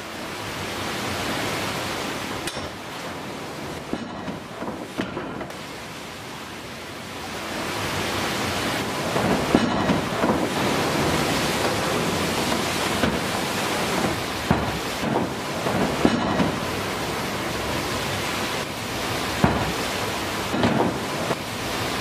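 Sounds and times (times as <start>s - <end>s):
water rushing: 0.0s - 22.0s
water wheel heavy knocks: 2.4s - 5.6s, 8.7s - 22.0s.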